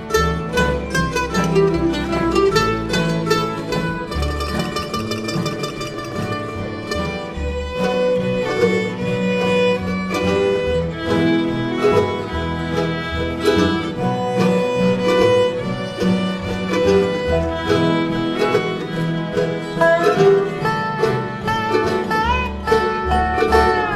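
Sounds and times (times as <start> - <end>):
fiddle playing long notes: 0.0 - 23.9
strummed acoustic guitar: 0.0 - 23.9
upright bass: 0.0 - 23.9.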